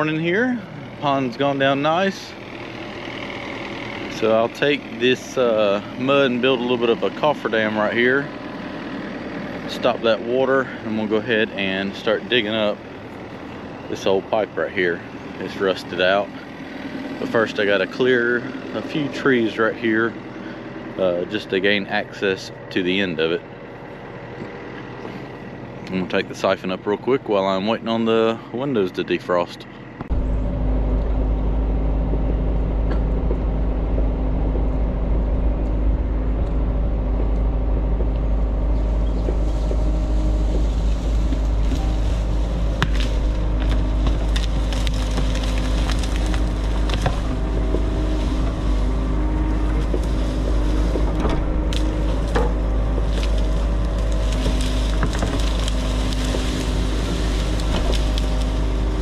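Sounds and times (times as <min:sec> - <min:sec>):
diesel engine idling: 0:00.0 - 0:59.0
clanks and knocks: 0:39.1 - 0:58.4.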